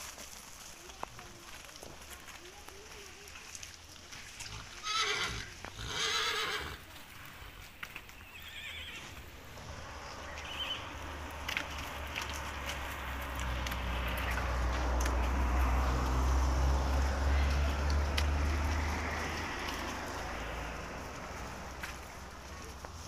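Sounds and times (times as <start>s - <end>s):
hooves knocking on stony ground: 0.0s - 23.0s
horses whinnying: 4.4s - 6.9s, 8.2s - 9.8s.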